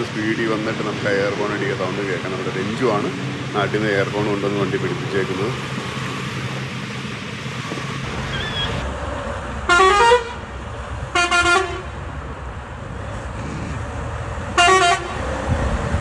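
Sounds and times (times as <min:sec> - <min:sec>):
truck engine rumbling: 0:00.0 - 0:16.0
multi-tone truck air horn: 0:09.7 - 0:10.4, 0:11.1 - 0:12.0, 0:14.6 - 0:15.3.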